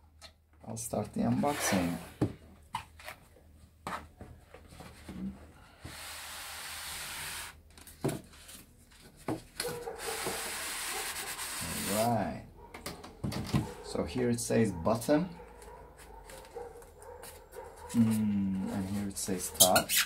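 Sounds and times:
foam scraping against cardboard: 0:01.3 - 0:02.2, 0:05.8 - 0:07.6, 0:09.8 - 0:12.1.

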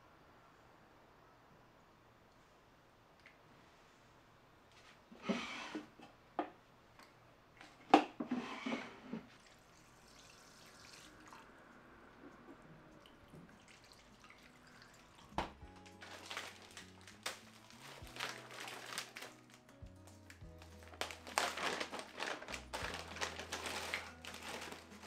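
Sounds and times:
water splashing: 0:09.3 - 0:15.6.

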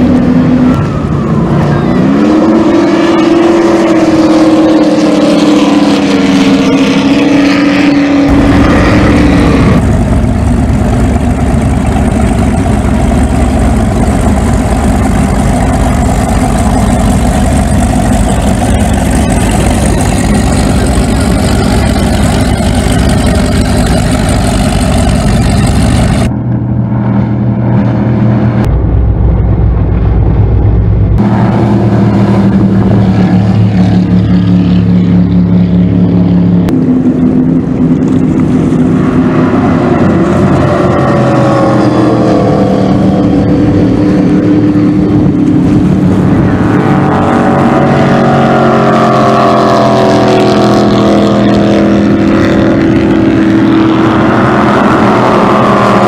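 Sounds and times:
powerboat engines revving: 0:00.0 - 0:28.7, 0:31.2 - 0:56.0.

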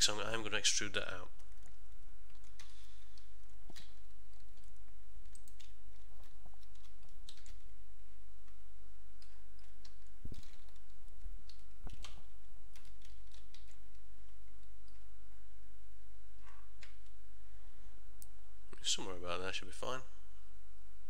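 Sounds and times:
low electrical hum: 0:00.0 - 0:21.0
keyboard and mouse clicks: 0:01.4 - 0:07.7, 0:09.2 - 0:15.0, 0:16.4 - 0:17.2.

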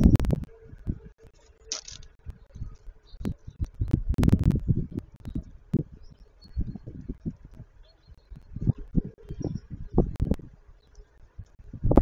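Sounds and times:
seeds rustling: 0:01.3 - 0:03.1.

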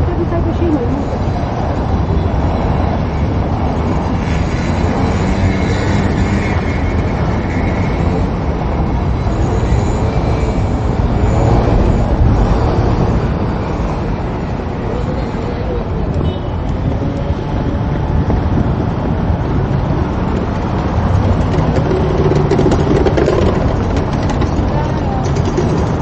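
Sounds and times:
low city rumble: 0:00.0 - 0:26.0
faint voices: 0:14.5 - 0:17.5, 0:21.1 - 0:26.0.

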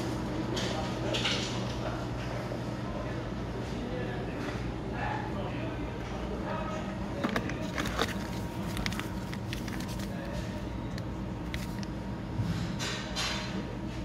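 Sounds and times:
steady background hum: 0:00.0 - 0:14.0
plastic foil sachet crinkling: 0:07.4 - 0:12.0.

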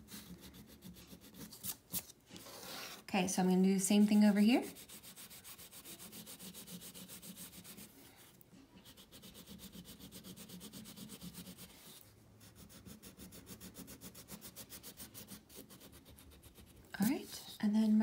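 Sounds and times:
crayon rubbing on paper: 0:00.0 - 0:01.7, 0:04.0 - 0:17.6.

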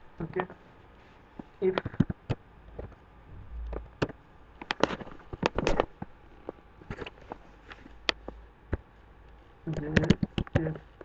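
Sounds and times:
computer keyboard keystrokes: 0:09.7 - 0:10.7.

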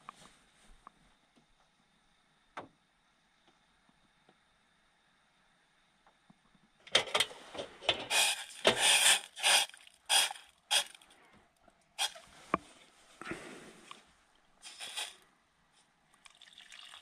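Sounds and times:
rustling and rubbing scrapes: 0:07.3 - 0:11.0, 0:12.0 - 0:15.2.

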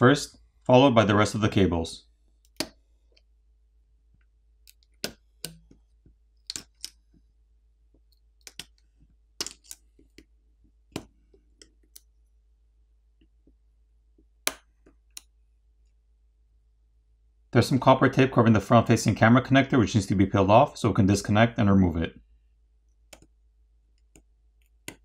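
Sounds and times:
connectors clicking: 0:04.2 - 0:05.8, 0:06.4 - 0:07.1, 0:09.4 - 0:10.3.

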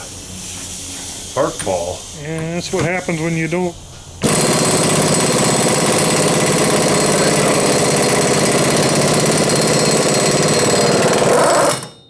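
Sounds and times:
air impact wrench hammering: 0:04.2 - 0:12.0.

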